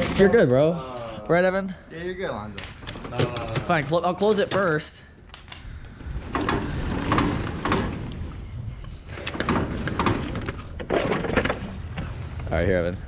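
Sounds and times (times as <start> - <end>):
metal roll-up door clanking: 6.2 - 8.2.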